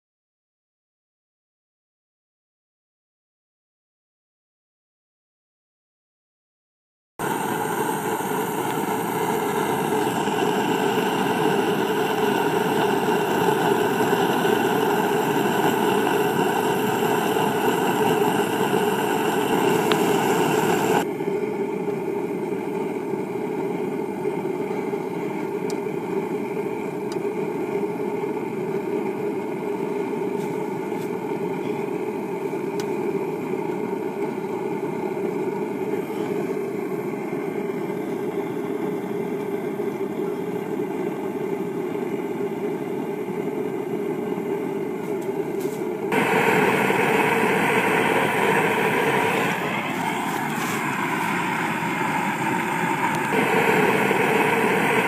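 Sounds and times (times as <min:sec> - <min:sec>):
gas burner rushing: 0:07.2 - 0:55.0.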